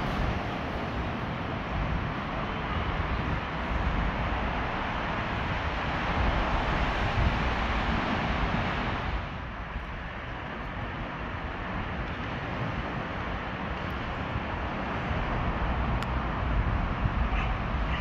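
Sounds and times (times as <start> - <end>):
road traffic rushing: 0.0 - 18.0
wind buffeting microphone: 0.0 - 18.0.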